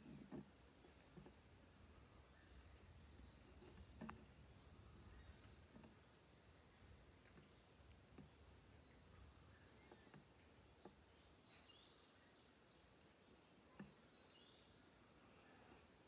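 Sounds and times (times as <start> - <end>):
faint bird chirps: 1.9 - 16.0.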